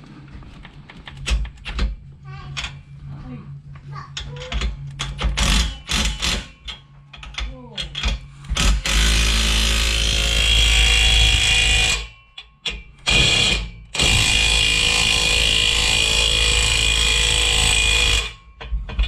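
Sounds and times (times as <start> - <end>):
cordless power tool spinning: 8.6 - 12.1, 13.1 - 18.4.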